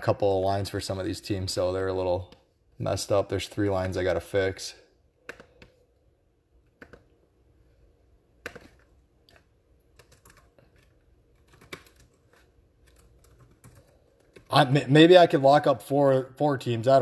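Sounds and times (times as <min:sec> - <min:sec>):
laptop keyboard typing: 0:05.2 - 0:05.8, 0:06.6 - 0:07.1, 0:08.4 - 0:14.5.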